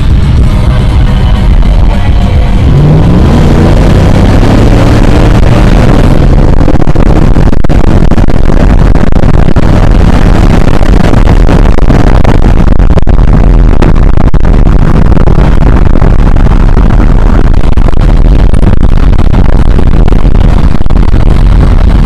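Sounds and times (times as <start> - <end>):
pickup engine accelerating hard: 0.0 - 22.0
wind and road noise: 0.0 - 22.0.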